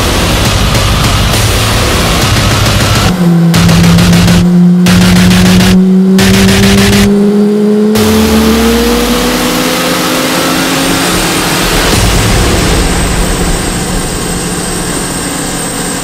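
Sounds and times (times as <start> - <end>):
deep rumble: 0.0 - 9.5, 10.8 - 16.0
loud rushing noise: 0.0 - 16.0
engine winding up: 0.4 - 12.2.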